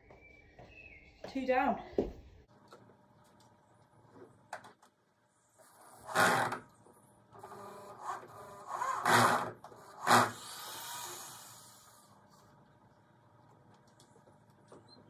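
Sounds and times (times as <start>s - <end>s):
cordless drill driving screws: 7.4s - 12.1s.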